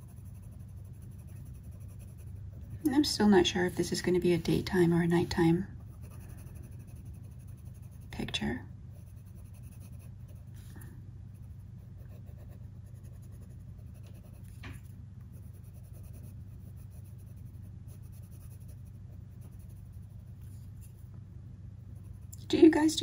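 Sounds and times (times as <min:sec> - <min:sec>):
pencil scratching on paper: 0:00.0 - 0:03.0, 0:03.6 - 0:08.4, 0:09.0 - 0:14.6, 0:15.3 - 0:21.0
low hum: 0:00.0 - 0:23.0.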